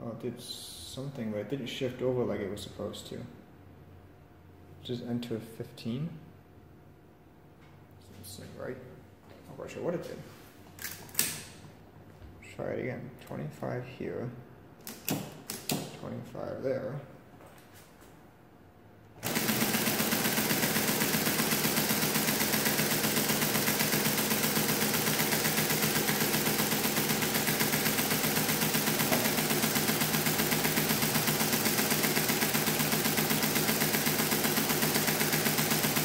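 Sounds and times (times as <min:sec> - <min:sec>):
mechanical calculator clattering: 0:19.2 - 0:36.0.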